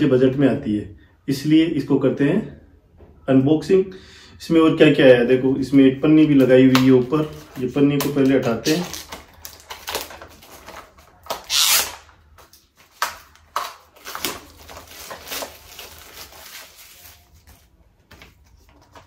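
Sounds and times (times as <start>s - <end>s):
plastic film crinkling and tearing: 6.6s - 17.8s.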